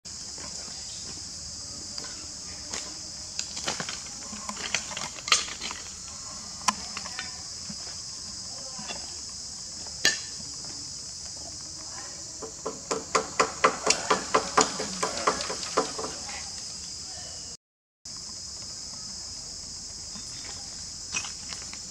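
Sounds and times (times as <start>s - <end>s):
insects droning: 0.1s - 21.9s
sharp knocks: 12.4s - 16.2s.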